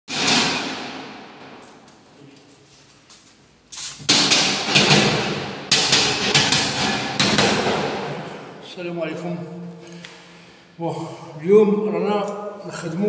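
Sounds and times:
sharp knocks in empty room: 0.1 - 2.0, 4.0 - 8.6.

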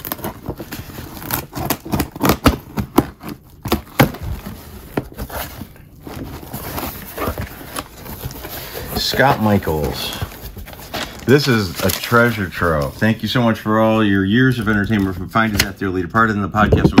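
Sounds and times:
blade cutting cardboard: 0.0 - 4.5
cardboard and tape tearing: 0.0 - 13.5.

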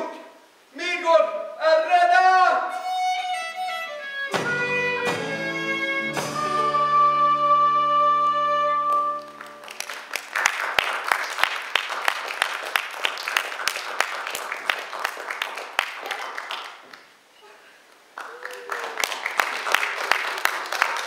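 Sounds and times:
acoustic folk ensemble with fiddle: 2.6 - 9.6
audience applause: 8.9 - 17.1, 18.1 - 21.0.

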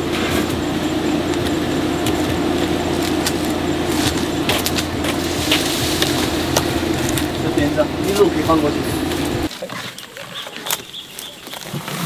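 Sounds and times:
honeybees buzzing: 0.0 - 9.5.

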